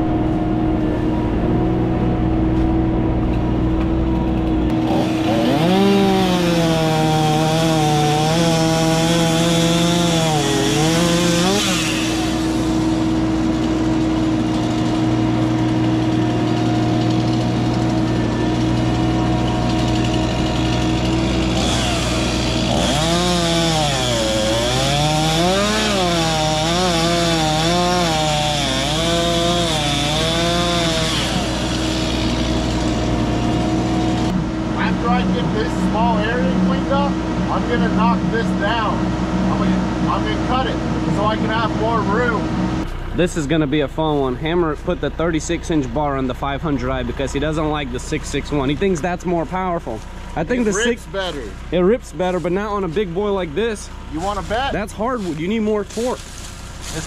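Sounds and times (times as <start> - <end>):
chainsaw cutting wood: 4.7 - 34.4, 49.9 - 51.4, 54.1 - 57.0.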